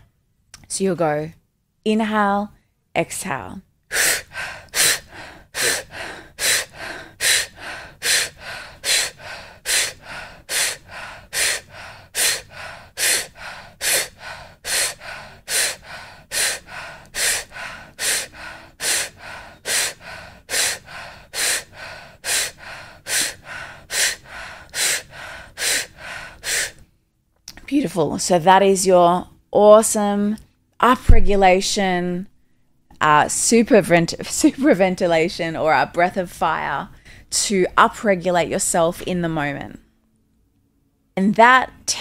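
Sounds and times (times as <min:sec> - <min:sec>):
woman breathing rapidly: 0:03.9 - 0:27.0, 0:36.9 - 0:37.3.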